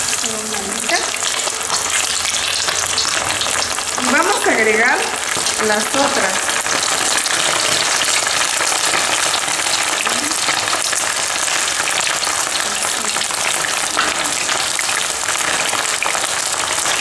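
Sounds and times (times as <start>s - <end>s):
chicken deep-frying in oil: 0.0s - 17.0s.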